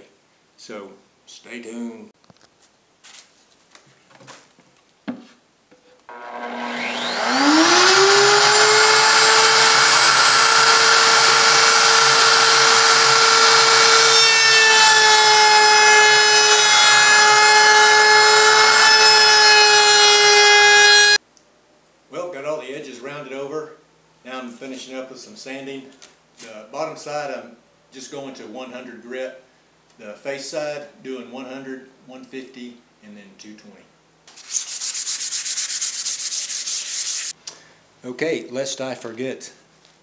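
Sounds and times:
router whining: 0:06.1 - 0:21.2.

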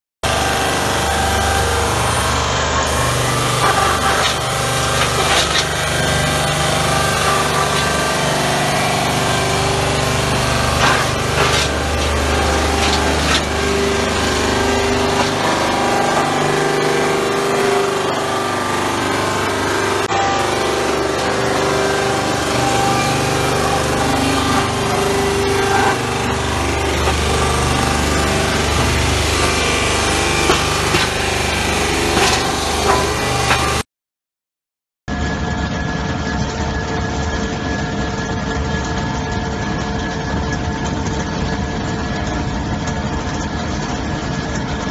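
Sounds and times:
wood grinder machine hum: 0:00.2 - 0:33.8, 0:35.1 - 0:44.9
wood crackling: 0:02.5 - 0:32.6.

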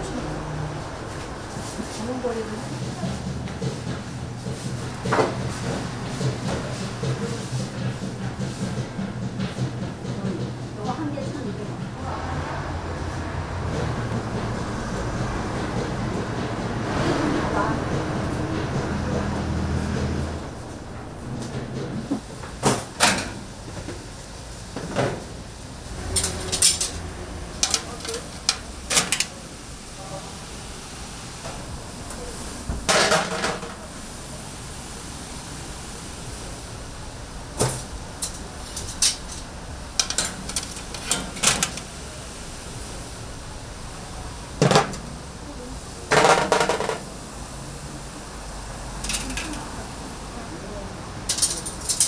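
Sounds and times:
kitchenware clattering: 0:32.9 - 0:33.8, 0:46.1 - 0:47.1, 0:51.3 - 0:52.0
hard objects clattering: 0:46.1 - 0:47.1.

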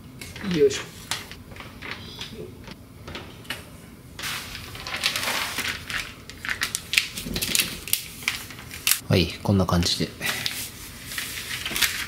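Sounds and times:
plastic or paper crinkling: 0:04.2 - 0:09.0, 0:10.3 - 0:12.0.

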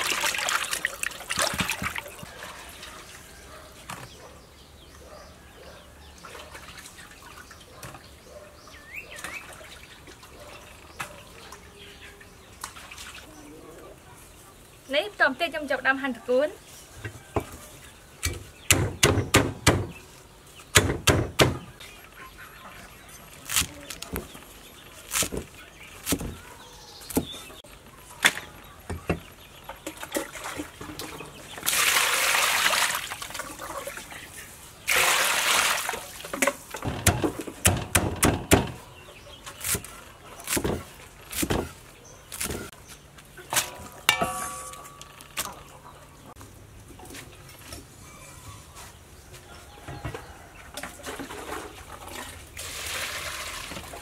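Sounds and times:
cleaver chopping on wooden block: 0:18.2 - 0:19.9, 0:36.8 - 0:38.8.

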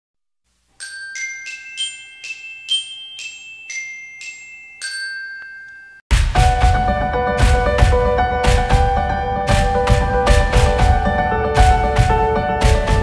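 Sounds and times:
bright ringing jingle melody: 0:00.8 - 0:06.1.

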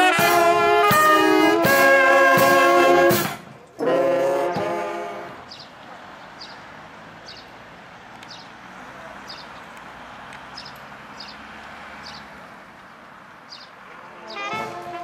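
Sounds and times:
bird chirping: 0:05.5 - 0:07.5, 0:08.2 - 0:08.6, 0:09.2 - 0:09.7, 0:10.5 - 0:12.4, 0:13.5 - 0:14.6.

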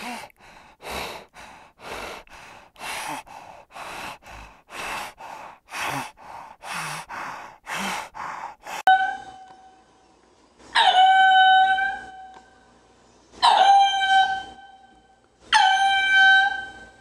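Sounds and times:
hyena breathing heavily: 0:00.0 - 0:08.9.

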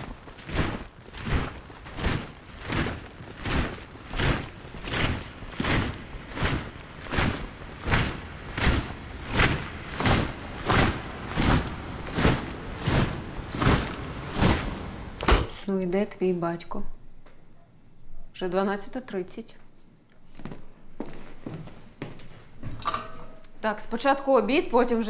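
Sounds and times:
boots thudding on gritty dirt: 0:00.0 - 0:15.4.

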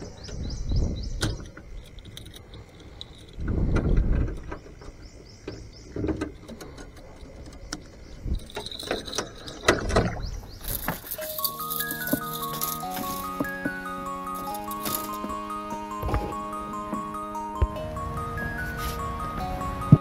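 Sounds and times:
knocks and clicks on hull: 0:00.0 - 0:11.2
water sloshing against boat: 0:00.0 - 0:20.0.

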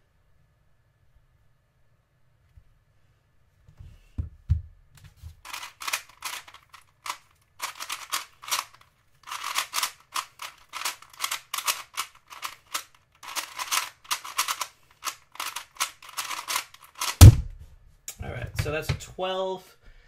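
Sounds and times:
puzzle cube clicking: 0:05.4 - 0:17.3.

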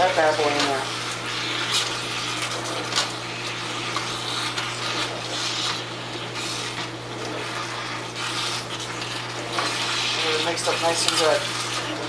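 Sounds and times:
metal tongs scraping a pan: 0:09.5 - 0:12.0.

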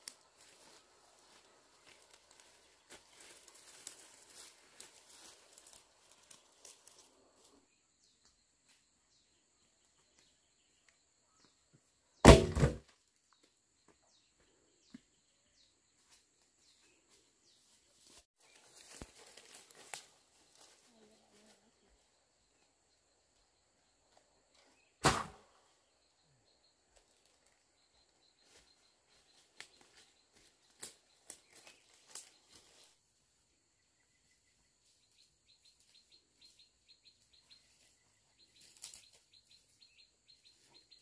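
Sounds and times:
footsteps in dry leaves: 0:00.0 - 0:07.1, 0:17.6 - 0:21.5
log thudding on ground: 0:12.2 - 0:12.9.

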